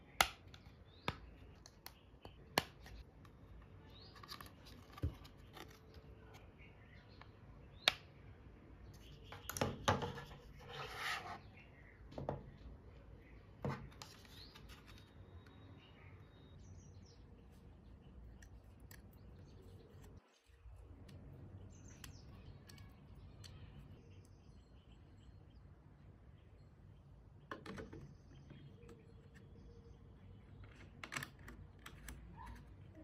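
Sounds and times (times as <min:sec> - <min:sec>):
plastic parts clicking and knocking: 0:27.5 - 0:29.0.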